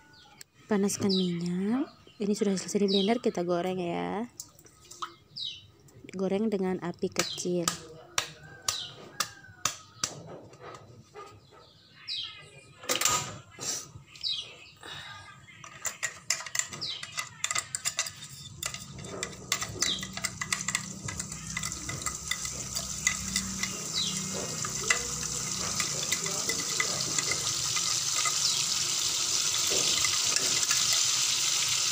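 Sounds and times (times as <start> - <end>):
spoon scraping metal: 15.7 - 31.8
bird chirps: 16.7 - 28.9
paste sizzling in oil: 20.0 - 31.9.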